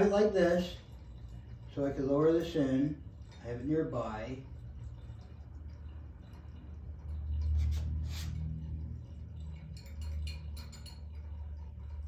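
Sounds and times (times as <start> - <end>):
stir bar clicking against glass: 9.5 - 11.4.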